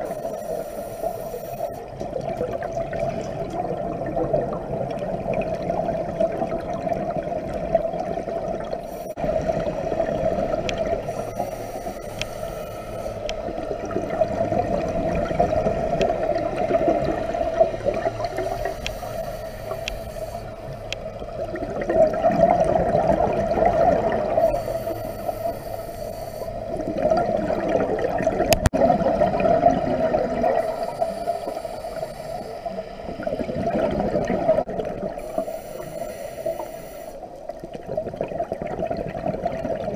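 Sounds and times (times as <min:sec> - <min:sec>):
regulator inhalation hiss: 0:00.0 - 0:01.9, 0:08.8 - 0:09.2, 0:11.0 - 0:13.7, 0:18.2 - 0:20.9, 0:24.3 - 0:26.8, 0:30.5 - 0:33.6, 0:35.2 - 0:37.4
exhaled bubbles gurgling: 0:00.0 - 0:39.9.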